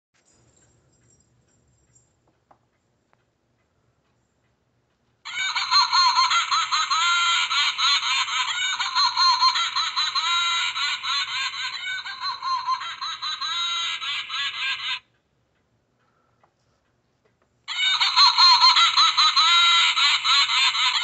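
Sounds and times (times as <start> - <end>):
tinny recorded cackling laugh: 5.3 - 15.1, 17.7 - 21.0.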